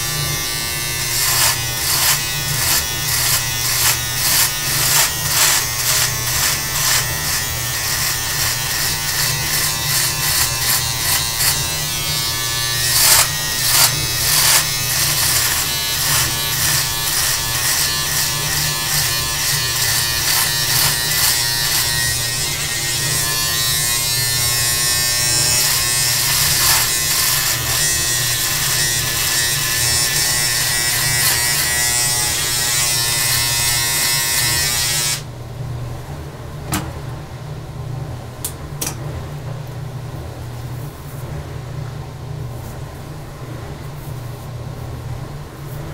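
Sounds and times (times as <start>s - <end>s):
electric beard trimmer buzzing: 0.0s - 35.3s
trimmer blades crackling through beard: 0.0s - 35.3s.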